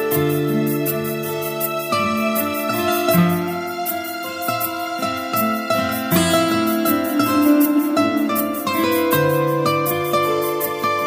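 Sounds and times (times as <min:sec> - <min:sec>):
sustained synth chords: 0:02.9 - 0:10.8.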